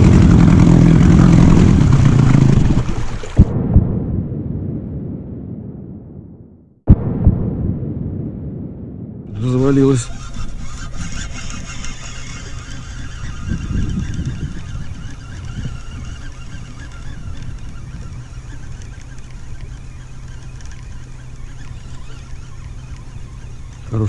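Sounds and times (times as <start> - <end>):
outboard motor droning: 0.0 - 3.5, 9.3 - 24.0
low rumble of wind and water: 0.0 - 24.0.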